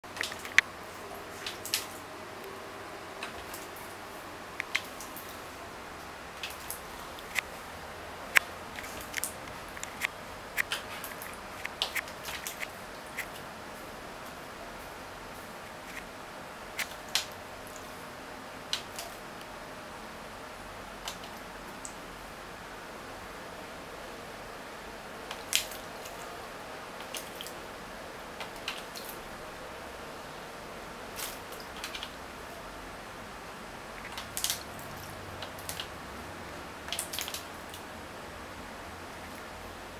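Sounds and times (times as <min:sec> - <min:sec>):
steady hiss: 0:00.0 - 0:39.9
bird claws clicking and scratching: 0:00.1 - 0:00.6, 0:08.3 - 0:13.4.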